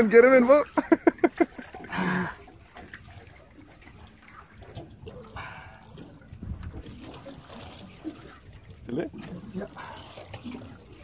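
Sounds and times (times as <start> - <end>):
water sloshing against hull: 0.0 - 11.0.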